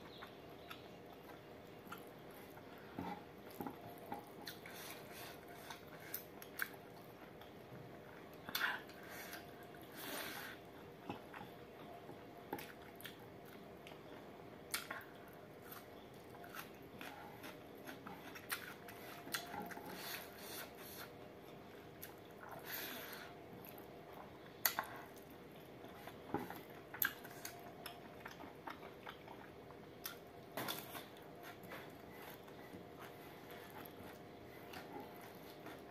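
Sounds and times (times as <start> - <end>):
faint steady hum: 0.0 - 35.9
person chewing with mouth clicks: 0.1 - 7.5, 14.7 - 35.9.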